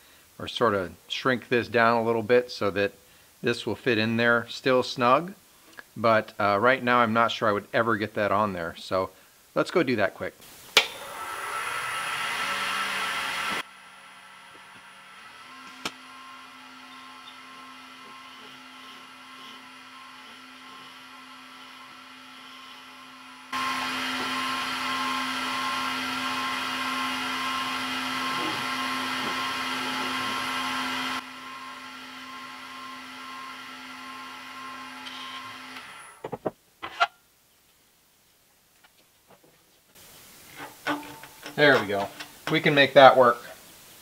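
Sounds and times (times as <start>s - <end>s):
lathe motor hum: 10.9s - 36.2s.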